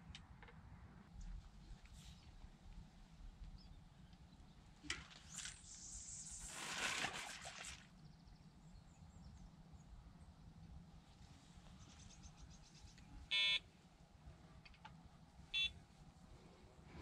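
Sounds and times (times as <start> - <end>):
fishing line hissing off reel: 5.3 - 7.5.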